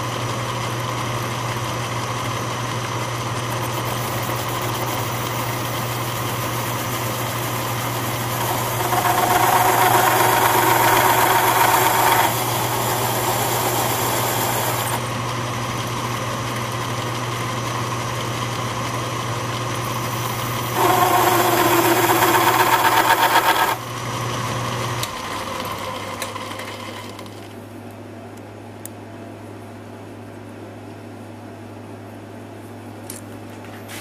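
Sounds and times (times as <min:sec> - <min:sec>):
lathe motor humming: 0:02.9 - 0:16.0, 0:16.6 - 0:27.4
lathe winding down: 0:03.6 - 0:15.1, 0:19.8 - 0:23.8
tool bit cutting steel with chatter: 0:03.8 - 0:15.0, 0:20.0 - 0:23.8.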